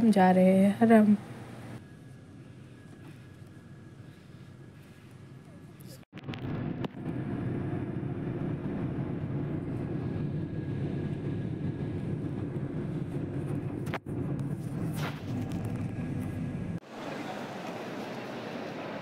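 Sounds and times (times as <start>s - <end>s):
bus engine and road noise: 0.0s - 19.0s.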